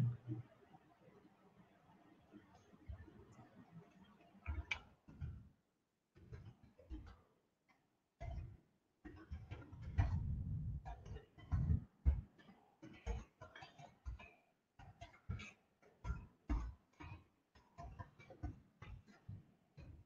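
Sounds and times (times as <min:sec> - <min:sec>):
soft low thumps: 0:00.0 - 0:00.4, 0:10.0 - 0:10.8.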